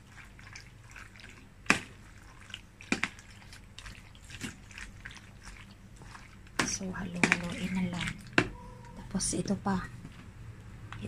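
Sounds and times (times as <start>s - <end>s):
wet squishing of pasta: 0.0s - 8.9s.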